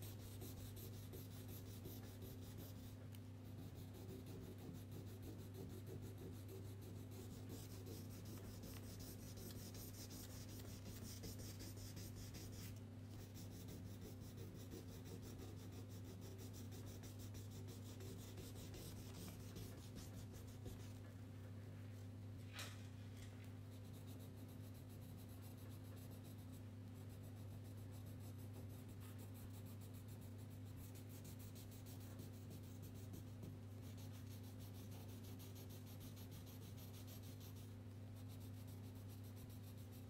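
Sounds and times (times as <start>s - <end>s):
crayon scribbling on paper: 0.0s - 2.9s, 3.5s - 20.8s
steady low hum: 0.0s - 40.0s.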